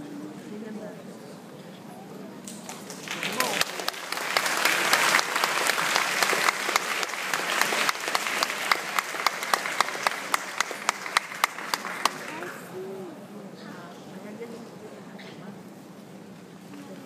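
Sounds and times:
audience applauding: 0:02.5 - 0:12.6.

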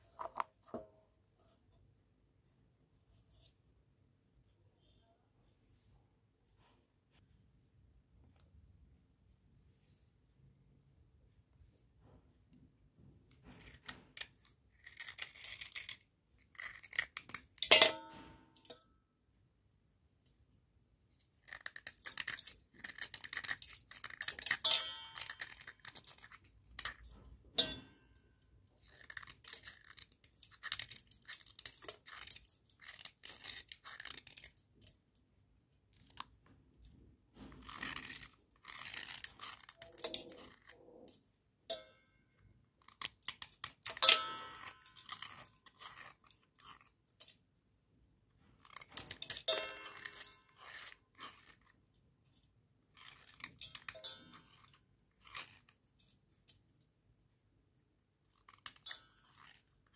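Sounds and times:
knife blade shaving slate pencil: 0:13.4 - 0:17.8, 0:21.2 - 0:27.8, 0:28.7 - 0:34.6, 0:35.9 - 0:36.3, 0:37.6 - 0:41.1, 0:42.8 - 0:47.4, 0:48.6 - 0:51.8, 0:52.9 - 0:56.0, 0:58.2 - 0:59.9.

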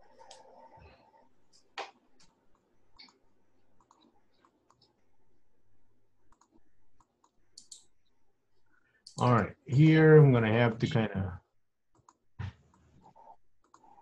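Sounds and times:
mouse and keyboard clicks: 0:03.0 - 0:03.2, 0:06.3 - 0:07.9.

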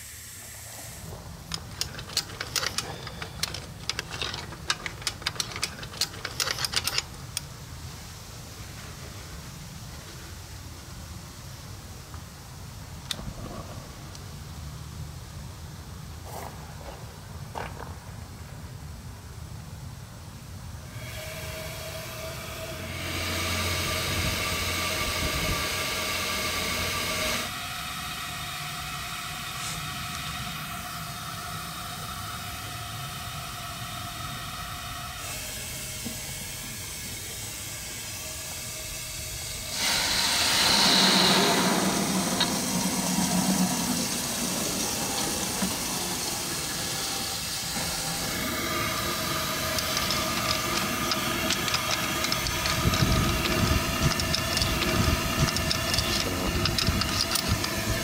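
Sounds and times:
steam hiss: 0:00.0 - 0:13.4, 0:20.8 - 0:58.0
faint steady whine: 0:18.2 - 0:58.0.

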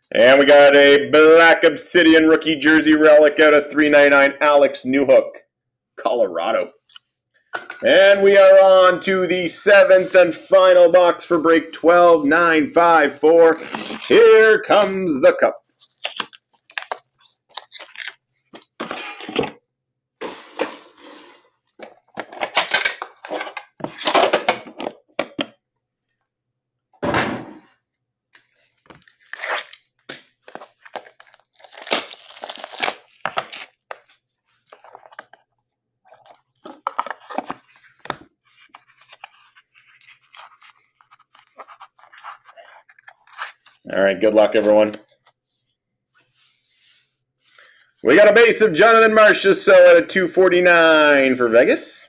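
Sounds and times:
cardboard and wrapping tearing: 0:13.4 - 0:14.8, 0:15.8 - 0:19.4, 0:28.8 - 0:35.4, 0:36.1 - 0:43.8.

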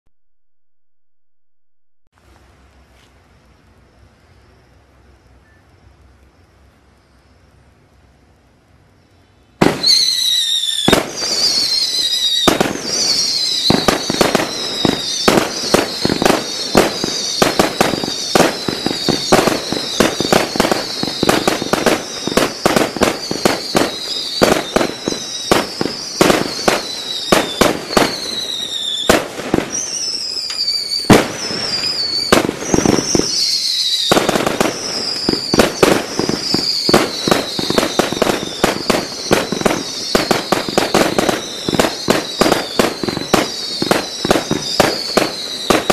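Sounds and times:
firework whistles falling in pitch: 0:09.6 - 0:45.9
fireworks bangs: 0:09.6 - 0:45.9.

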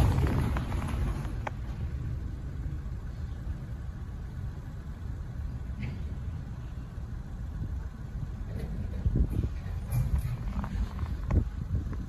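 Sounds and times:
freight cars rolling past: 0:00.0 - 0:12.0.

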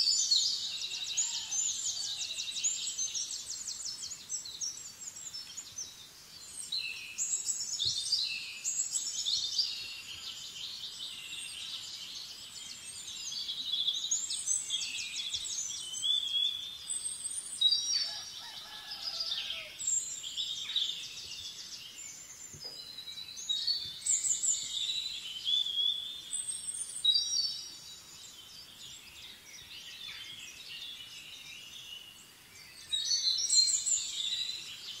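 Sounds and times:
small birds chirping and trilling: 0:00.0 - 0:35.0.

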